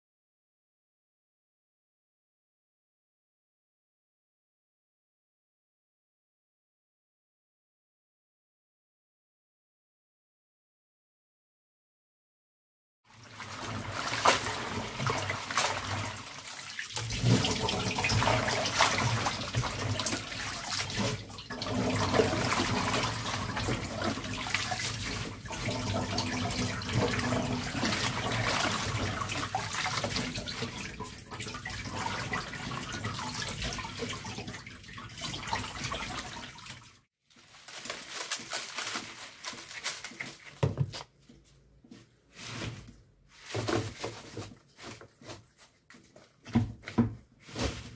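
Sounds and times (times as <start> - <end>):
water sloshing and splashing: 13.1 - 40.9, 42.4 - 47.9.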